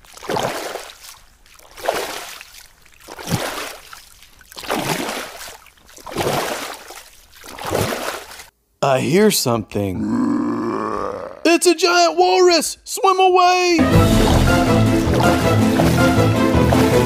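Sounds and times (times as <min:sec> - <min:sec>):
water splashing with swim strokes: 0:00.0 - 0:08.5, 0:13.8 - 0:17.0.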